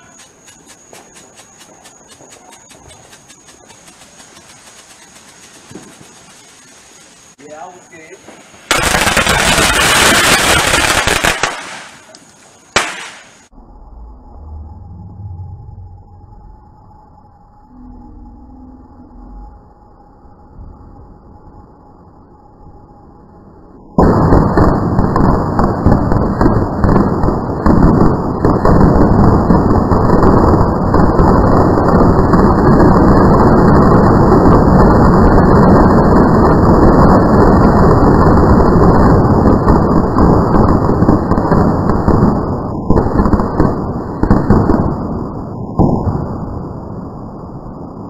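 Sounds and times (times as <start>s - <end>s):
firecrackers crackling: 0.0s - 13.5s, 24.0s - 47.0s.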